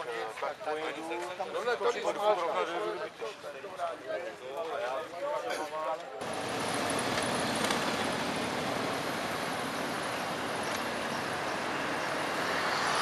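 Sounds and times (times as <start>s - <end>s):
motorcycles riding past: 6.2s - 13.0s.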